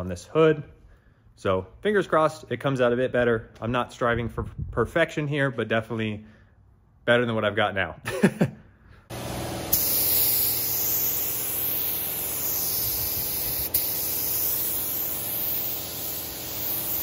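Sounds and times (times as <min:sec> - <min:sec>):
spray gun hissing: 0:09.1 - 0:17.0.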